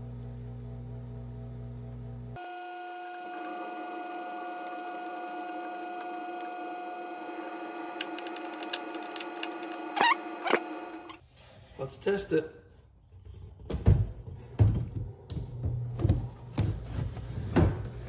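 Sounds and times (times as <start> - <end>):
cordless drill motor running: 2.4 - 11.2
short loud squeaks: 9.9 - 11.2.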